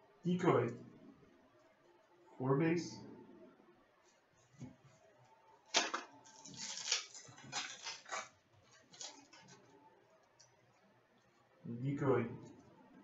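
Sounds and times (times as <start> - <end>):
sharp crackle: 5.7 - 9.6
foil card packs crinkling: 5.7 - 9.7.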